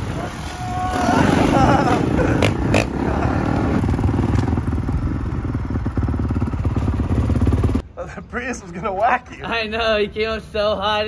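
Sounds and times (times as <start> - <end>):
dirt bike engine running: 1.1 - 7.8.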